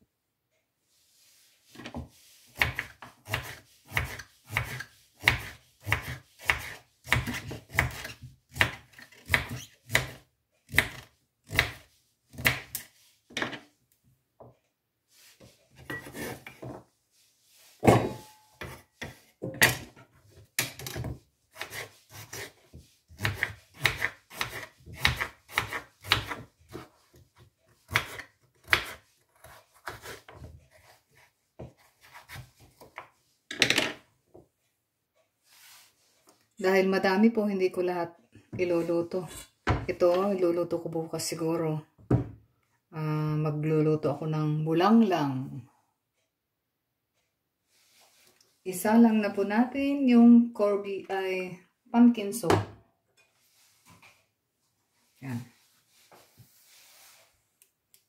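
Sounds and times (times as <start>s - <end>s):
knife chopping on wooden board: 2.6s - 12.9s, 20.6s - 31.0s, 31.6s - 33.0s.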